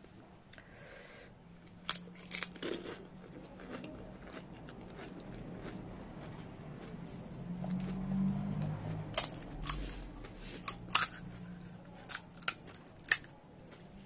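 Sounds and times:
chewing: 0:01.6 - 0:14.0
crisp shell crunching bite: 0:01.8 - 0:03.2.

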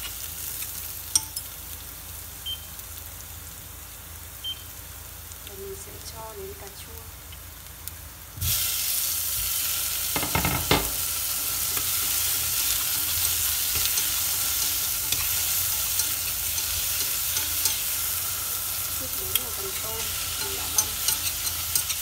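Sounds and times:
food sizzling in hot fat: 0:00.0 - 0:22.0
stirring in a pot: 0:10.1 - 0:22.0.

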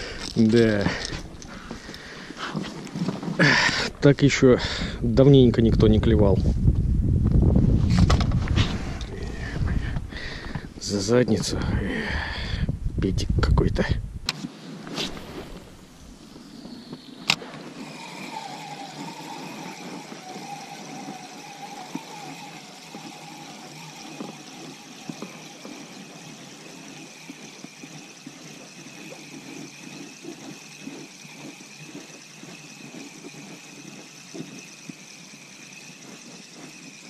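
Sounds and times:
fishing reel gears whirring: 0:00.0 - 0:05.3, 0:15.7 - 0:37.0.

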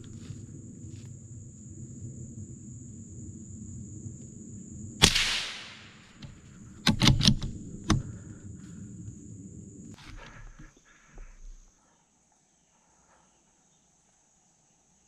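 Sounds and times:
steady high whine: 0:00.0 - 0:11.6
gunshot with echo: 0:05.0 - 0:06.0.

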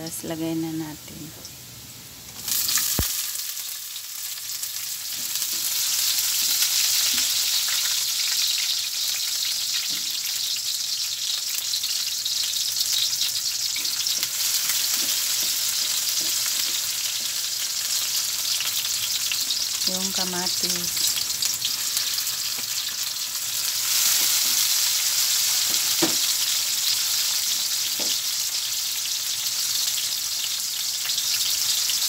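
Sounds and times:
onion sizzling in oil: 0:00.0 - 0:32.0
knock on pan: 0:25.7 - 0:26.3, 0:28.0 - 0:28.2.

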